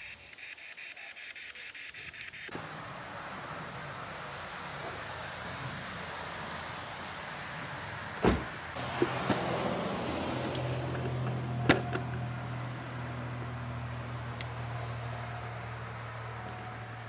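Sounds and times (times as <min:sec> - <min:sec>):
heavy thump: 0:08.2 - 0:09.4.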